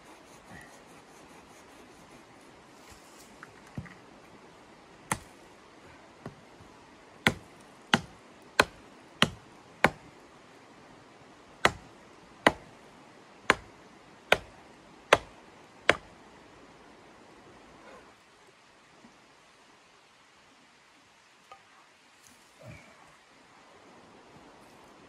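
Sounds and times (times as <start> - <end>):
hatchet chopping wooden pole: 5.1 - 5.3, 7.2 - 10.0, 11.6 - 12.7, 13.5 - 13.7, 14.3 - 14.5, 15.1 - 15.3, 15.9 - 16.1.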